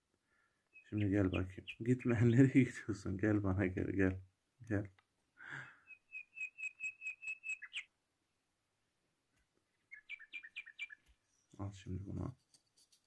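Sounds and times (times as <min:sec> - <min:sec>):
parrot chirping: 0:05.8 - 0:07.9, 0:09.8 - 0:11.0.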